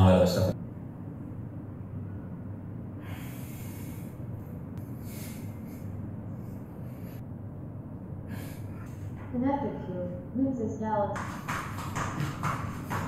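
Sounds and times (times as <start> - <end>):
steady low hum: 0.0 - 13.0
man breathing: 3.0 - 7.3, 8.2 - 9.2.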